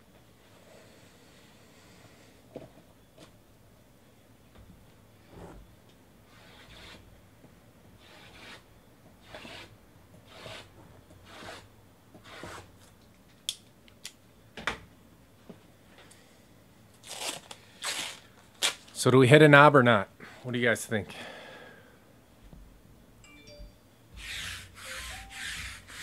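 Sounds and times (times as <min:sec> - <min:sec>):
cardboard boxes rubbing together: 0:24.2 - 0:26.0.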